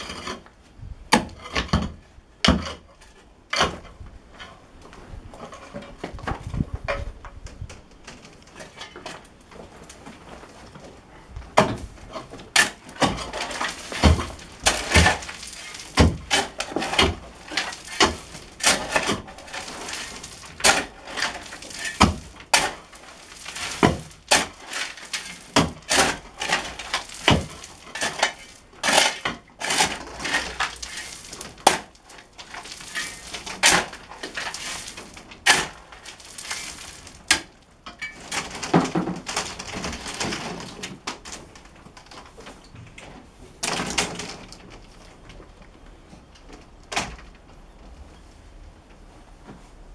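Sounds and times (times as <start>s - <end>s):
shovel scraping into gravelly soil: 12.2s - 37.3s.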